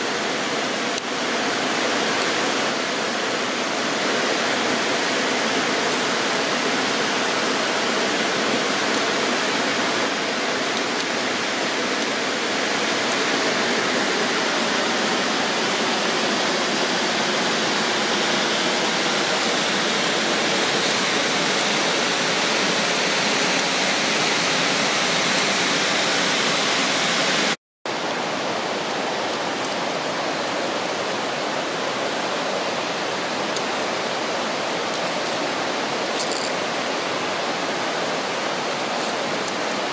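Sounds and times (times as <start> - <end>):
roar of rushing river: 0.0 - 39.9.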